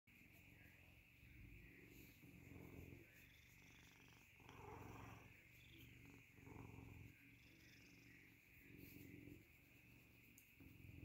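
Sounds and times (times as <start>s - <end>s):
cat purring: 0.1s - 11.0s.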